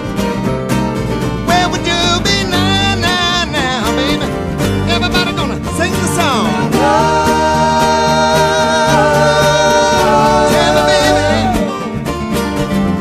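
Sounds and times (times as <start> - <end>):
acoustic guitars: 0.0 - 13.0
voices singing harmony chord: 6.6 - 11.7.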